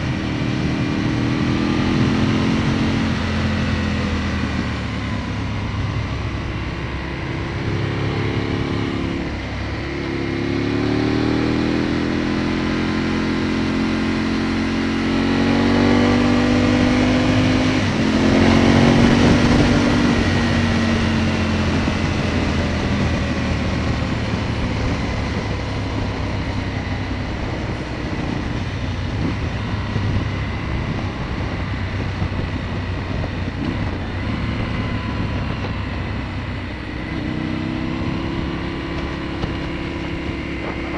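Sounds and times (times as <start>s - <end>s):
motorcycle engine accelerating: 0.0s - 40.9s
wind noise: 0.0s - 40.9s.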